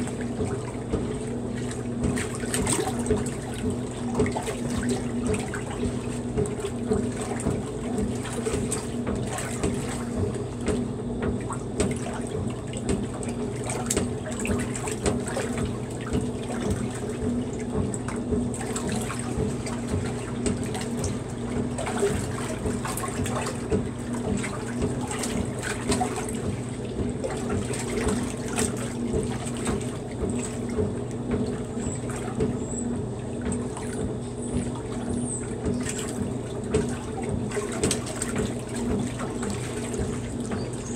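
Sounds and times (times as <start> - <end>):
washer motor hum: 0.0 - 40.9
washer sloshing water: 0.0 - 40.9.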